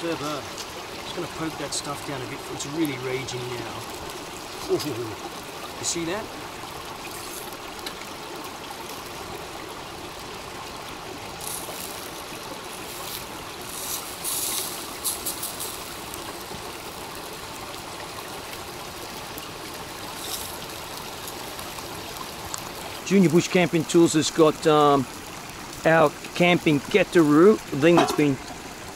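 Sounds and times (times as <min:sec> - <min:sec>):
stream trickling over rocks: 0:00.0 - 0:28.9
sharp crackles: 0:07.0 - 0:08.1, 0:11.4 - 0:16.9, 0:19.4 - 0:23.1.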